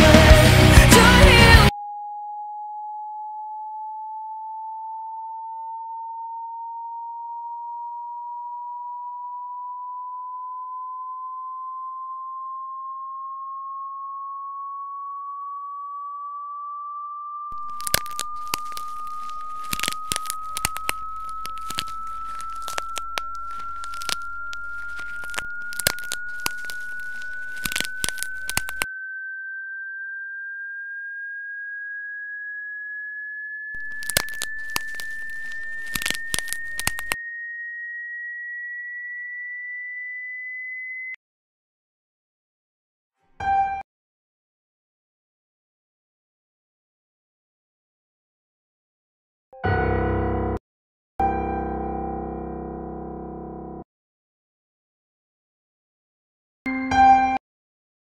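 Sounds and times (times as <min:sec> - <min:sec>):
electronic sine tone rising: 0:00.0 - 0:41.2
crackles and clicks: 0:17.5 - 0:29.0, 0:33.3 - 0:37.3.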